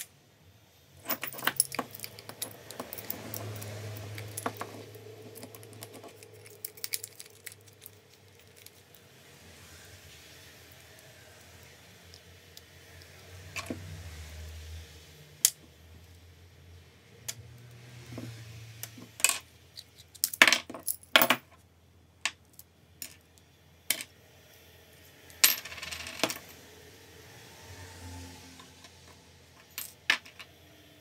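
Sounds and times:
metal parts clicking and clinking: 1.0 - 9.0, 18.8 - 21.6, 29.6 - 30.6
parts set down on wooden bench: 4.3 - 4.8.

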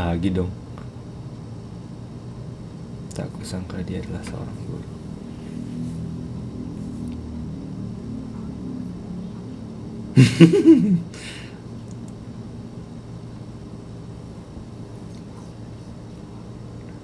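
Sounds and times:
man laughing: 10.2 - 11.5.

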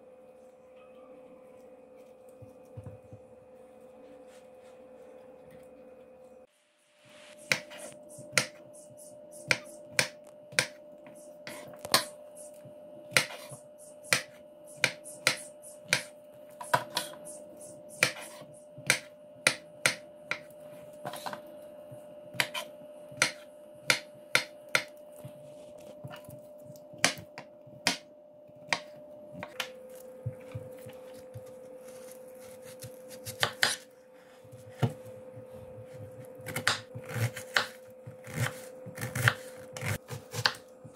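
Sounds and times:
knife chopping on wooden board: 7.4 - 8.6, 13.1 - 17.2, 18.0 - 20.5, 22.3 - 24.9, 27.0 - 28.0, 28.7 - 29.6, 32.4 - 33.8, 36.0 - 40.9.

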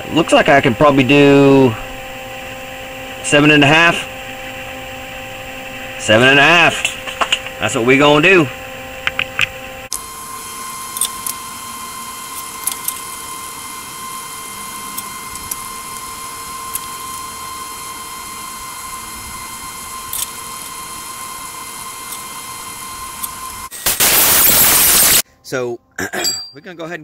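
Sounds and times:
thin steady whine: 0.0 - 25.6
steady hiss: 23.7 - 25.2
metal tools tapping on steel bar: 26.2 - 26.6.

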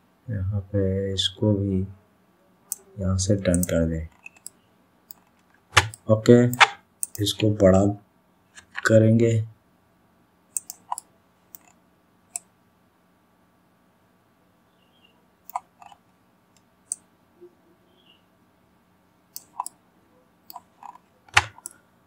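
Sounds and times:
faint hum: 0.0 - 22.0
mouse and keyboard clicks: 3.5 - 7.3, 10.6 - 12.5, 15.5 - 16.0, 19.4 - 19.8, 20.5 - 21.8.

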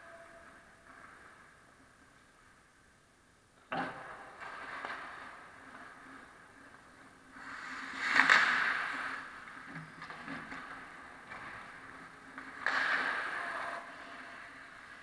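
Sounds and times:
skate blades scraping ice: 4.4 - 15.0.

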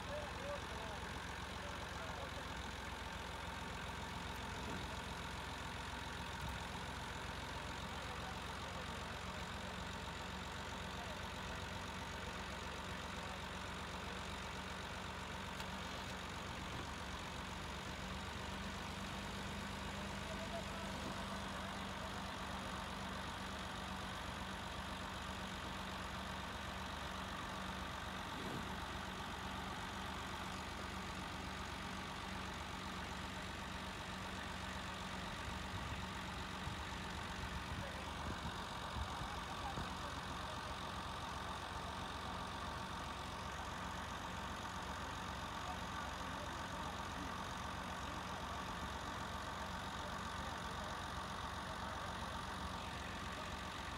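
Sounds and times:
tractor diesel engines idling: 0.0 - 53.9.

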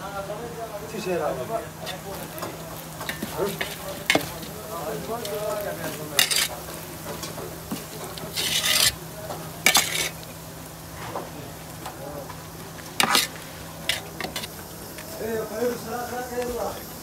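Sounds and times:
metal spoon scraping rice pot: 6.2 - 6.6, 8.2 - 9.0, 9.7 - 10.2, 13.0 - 14.5.

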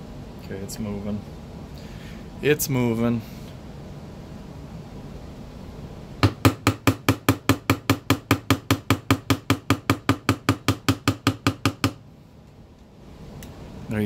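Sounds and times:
mallet tapping pin punch: 6.2 - 12.0.

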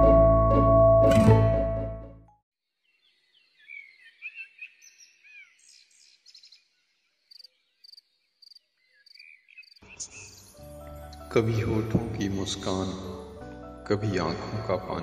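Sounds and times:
birds twittering: 2.8 - 11.0
crickets chirping: 7.2 - 10.6.

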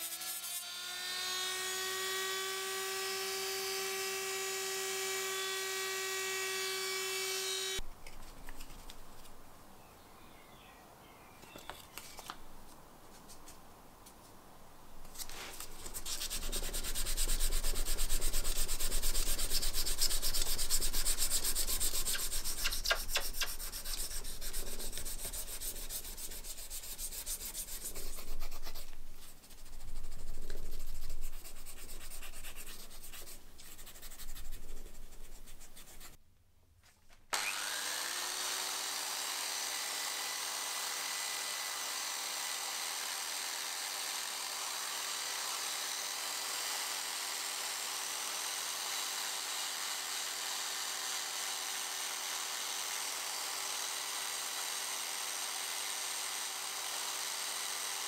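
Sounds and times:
sandpaper rubbing on metal blade: 15.1 - 36.2.

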